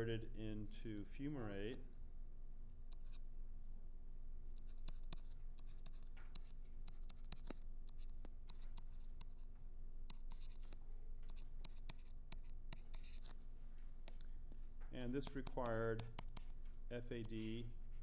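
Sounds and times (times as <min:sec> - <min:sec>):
low steady hum: 0:00.0 - 0:18.0
stylus tapping on tablet screen: 0:04.6 - 0:09.4, 0:10.1 - 0:13.3, 0:15.2 - 0:16.6.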